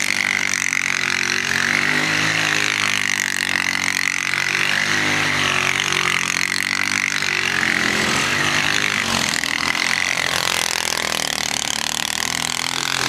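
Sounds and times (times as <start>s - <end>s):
quad bike engines revving: 0.0s - 13.0s.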